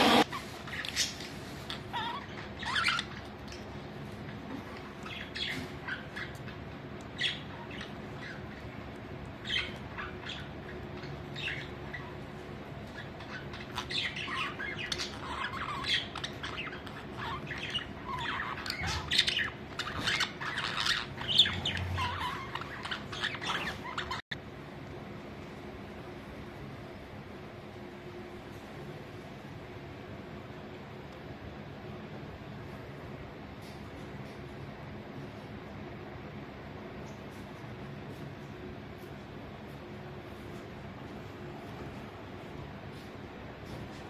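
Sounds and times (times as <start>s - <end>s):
budgerigars chirping: 0.0s - 3.7s, 12.8s - 24.2s.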